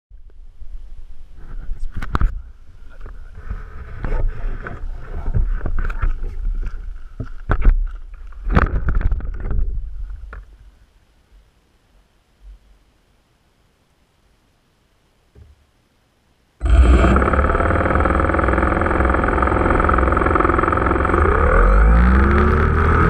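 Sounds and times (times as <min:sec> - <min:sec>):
camera rubbing against padded jacket: 0:03.2 - 0:06.8.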